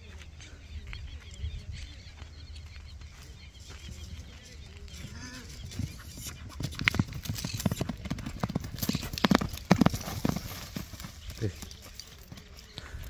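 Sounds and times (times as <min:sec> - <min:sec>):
horse galloping on loose ground: 0:00.0 - 0:13.0.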